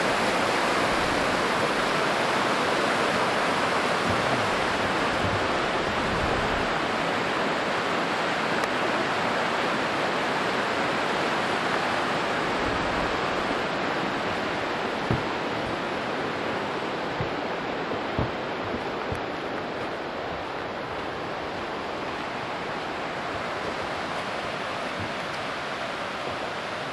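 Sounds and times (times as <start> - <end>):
river rushing over rocks: 0.0 - 26.9
soft thumps: 4.0 - 5.7, 14.1 - 19.9.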